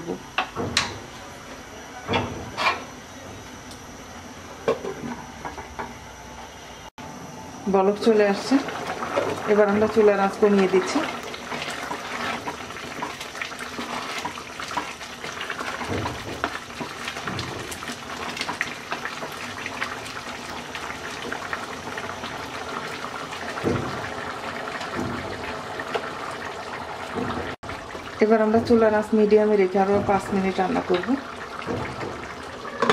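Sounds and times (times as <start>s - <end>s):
pot boiling hard: 7.6s - 32.9s.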